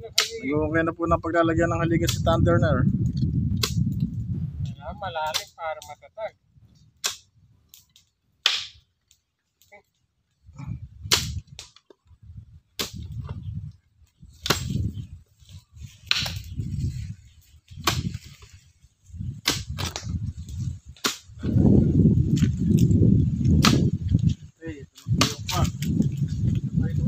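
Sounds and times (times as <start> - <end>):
digging tool striking ground: 11.1 - 11.9, 12.8 - 13.3, 14.4 - 14.9, 16.0 - 16.6, 17.8 - 18.5, 19.4 - 20.2, 20.9 - 21.5, 23.5 - 24.3.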